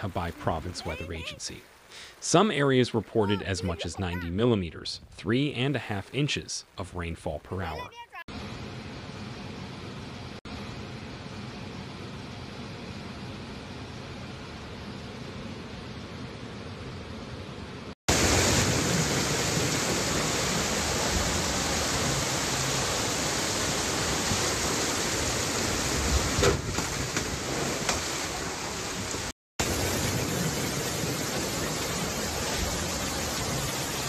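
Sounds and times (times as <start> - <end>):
heavy rain falling: 0.0 - 4.2, 18.1 - 34.0
floodwater rushing: 0.0 - 4.6, 18.1 - 34.0.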